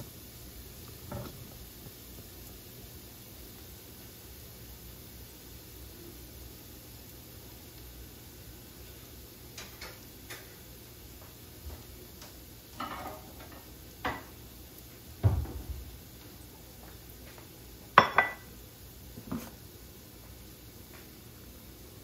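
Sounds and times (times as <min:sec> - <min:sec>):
faint steady hiss: 0:00.0 - 0:22.0
crockery knocking and clinking: 0:12.8 - 0:14.3, 0:18.0 - 0:18.5
ceramic bowl clanking on counter: 0:18.0 - 0:18.4.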